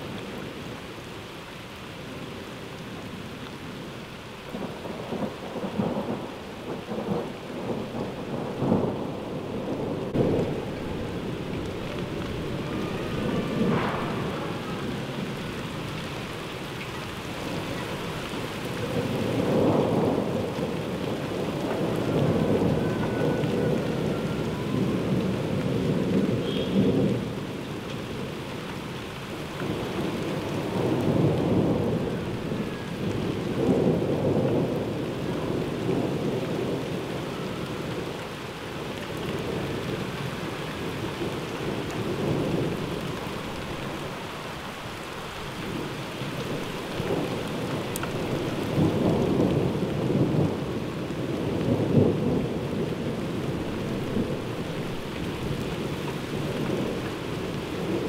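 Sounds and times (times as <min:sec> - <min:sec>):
heavy rain falling: 0:00.0 - 0:58.0
rolling thunder: 0:04.5 - 0:27.6, 0:29.6 - 0:38.2, 0:45.6 - 0:58.0.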